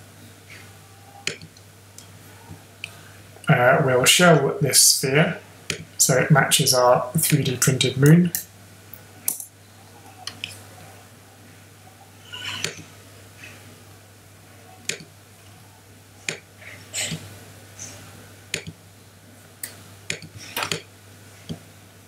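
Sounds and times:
faint steady hum: 0.0 - 22.0
computer mouse clicks: 14.9 - 15.1.

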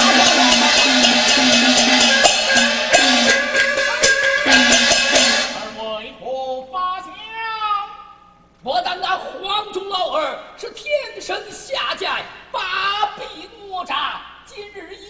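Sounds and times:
gong ringing: 0.0 - 5.9
opera percussion ensemble: 0.0 - 6.2.

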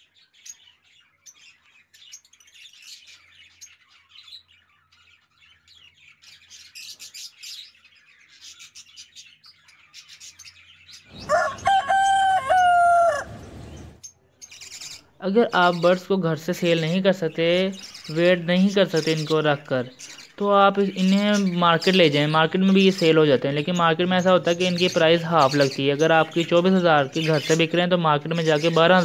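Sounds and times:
budgies chirping: 0.0 - 29.0
rooster crowing: 11.1 - 14.0.

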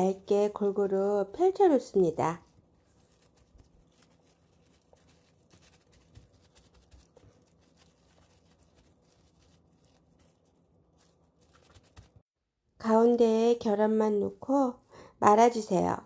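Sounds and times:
gloved hands rustling: 0.0 - 12.3.

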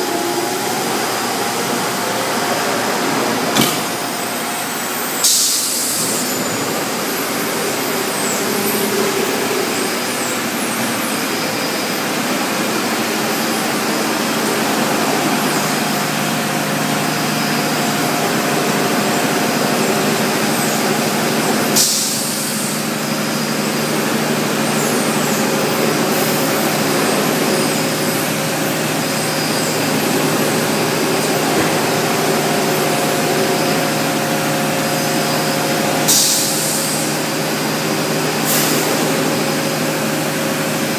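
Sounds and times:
industrial laundry machinery din: 0.0 - 40.9
low machine hum: 0.0 - 40.9
compressed air hiss: 5.2 - 6.4, 21.8 - 22.8, 36.0 - 37.3, 38.4 - 39.1.

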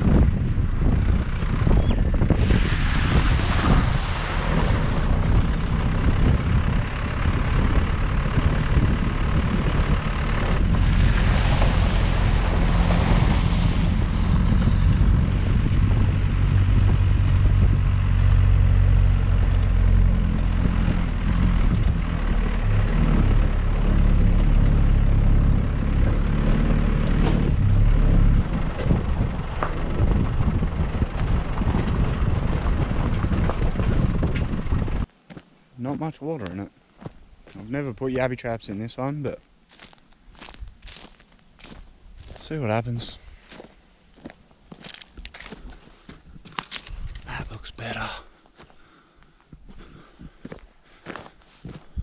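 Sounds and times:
off-road vehicle engine running: 0.0 - 35.1, 49.6 - 52.0
tyres on dirt track: 0.0 - 52.0.

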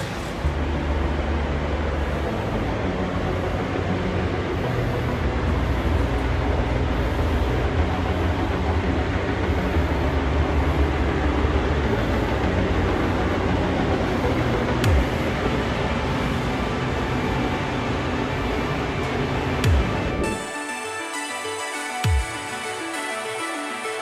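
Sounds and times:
ventilation fans running: 0.0 - 24.0.

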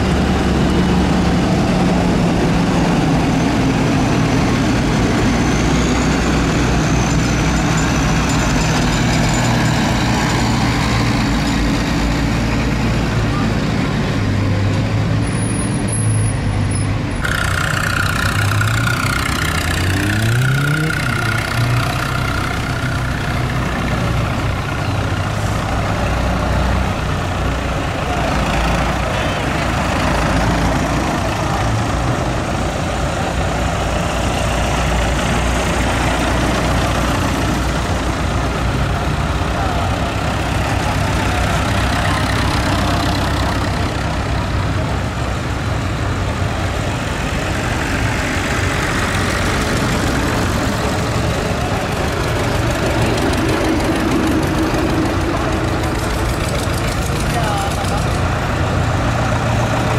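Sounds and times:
tractor engines running: 0.0 - 59.9.

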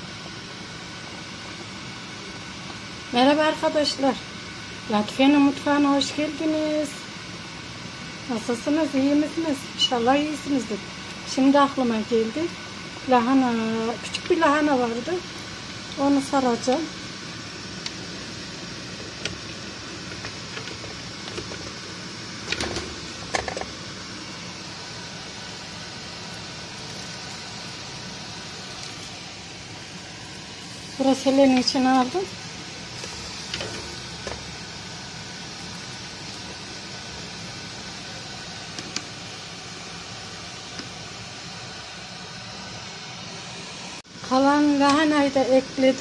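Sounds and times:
gas burner hissing: 0.0 - 46.0
steady hiss: 23.8 - 44.0.

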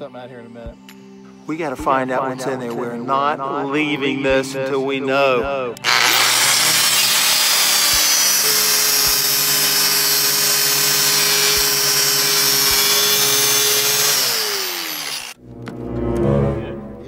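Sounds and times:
angle grinder cutting steel: 5.8 - 15.4.

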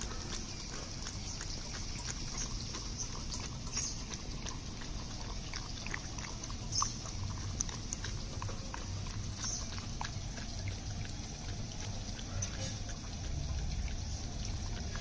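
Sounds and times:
low steady rumble: 0.0 - 15.0
puppy lapping and slurping: 0.0 - 15.0.

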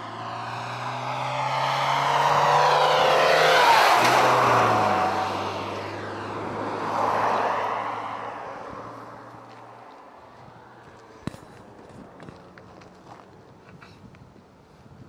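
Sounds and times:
car passing at speed: 0.0 - 13.3.

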